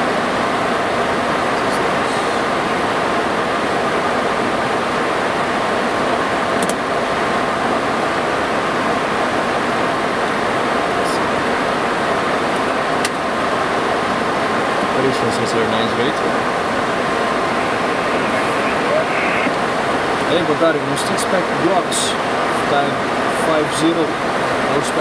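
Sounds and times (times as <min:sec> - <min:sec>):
faint steady tone: 0:14.0 - 0:20.3.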